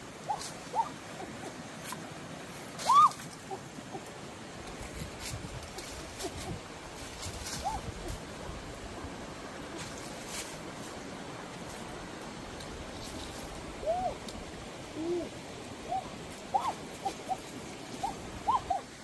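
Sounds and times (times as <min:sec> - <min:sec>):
stream rushing over rocks: 0:00.0 - 0:19.0
bird hooting calls: 0:00.1 - 0:01.7, 0:02.8 - 0:04.2, 0:07.5 - 0:08.2, 0:13.8 - 0:19.0.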